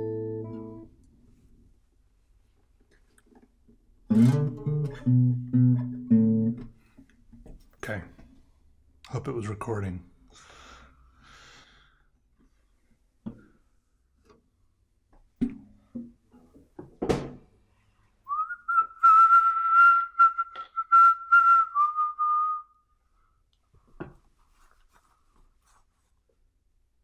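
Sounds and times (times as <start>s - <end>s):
person whistling a long note: 18.3s - 22.9s.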